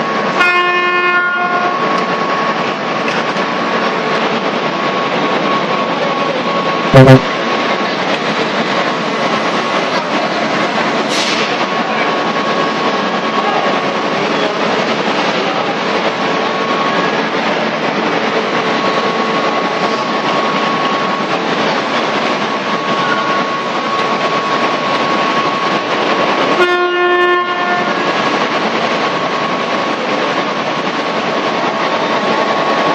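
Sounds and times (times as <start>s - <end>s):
horn: 7.0s - 7.3s
gas burner roaring steadily: 7.9s - 32.9s.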